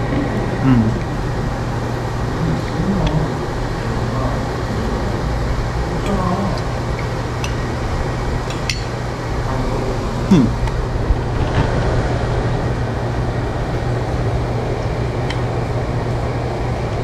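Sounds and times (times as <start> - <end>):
faint background chatter: 0.0 - 1.4
fan-like hum and hiss: 0.0 - 17.0
tableware clinking: 8.5 - 9.0.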